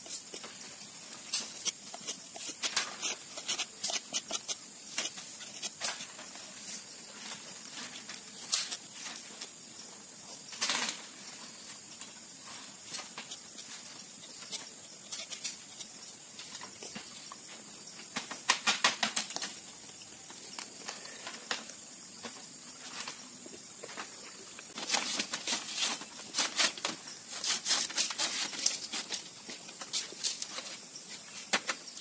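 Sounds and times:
bamboo slats clattering: 10.5 - 13.3.

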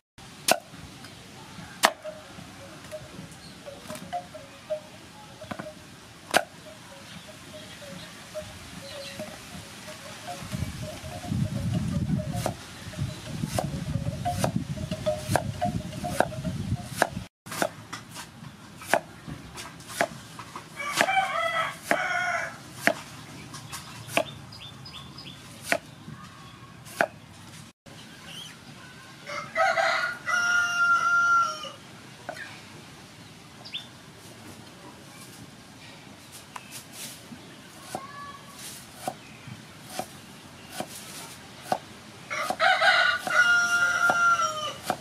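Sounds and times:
cleaver chopping on wooden board: 0.5 - 0.7, 1.8 - 2.0, 6.3 - 6.6, 14.3 - 14.6, 16.9 - 20.2, 20.9 - 21.2, 21.8 - 22.1, 22.8 - 23.1, 24.1 - 24.4, 25.6 - 25.9, 26.9 - 27.2, 39.0 - 39.2, 39.9 - 40.1, 40.7 - 41.0, 44.8 - 45.0
rooster crowing: 20.8 - 22.6, 29.2 - 31.8, 42.3 - 44.9.

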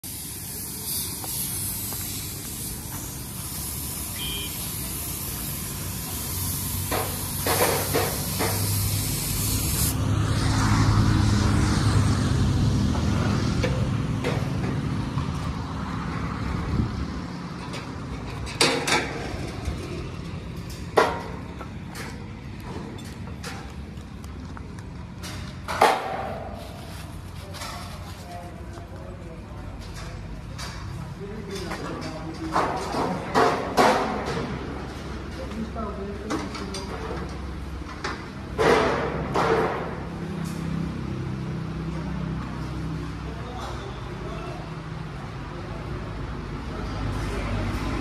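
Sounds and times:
steady high hiss: 0.0 - 10.0.

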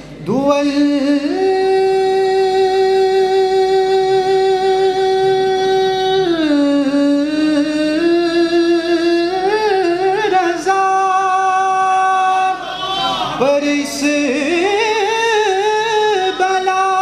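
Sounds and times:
man singing unaccompanied: 0.2 - 12.7, 13.3 - 17.0.

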